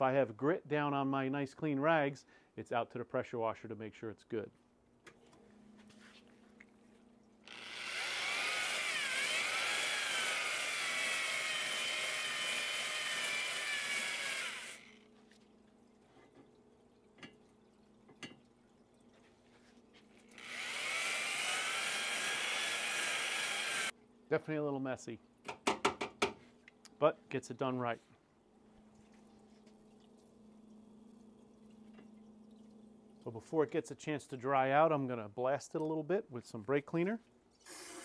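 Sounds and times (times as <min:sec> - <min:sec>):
cordless drill whining: 0:07.4 - 0:15.1, 0:20.3 - 0:23.9.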